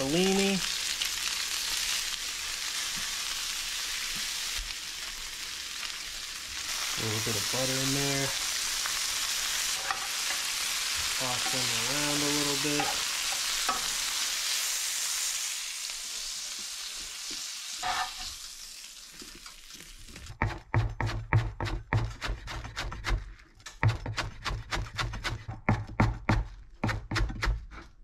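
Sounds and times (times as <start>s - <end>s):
vegetables sizzling in a pan: 0.0s - 20.4s
knife chopping on plastic board: 20.4s - 23.2s, 23.8s - 27.8s.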